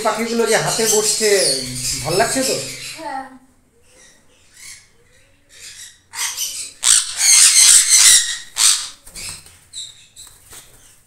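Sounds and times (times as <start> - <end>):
parrots screeching: 0.0 - 3.1, 5.6 - 9.4.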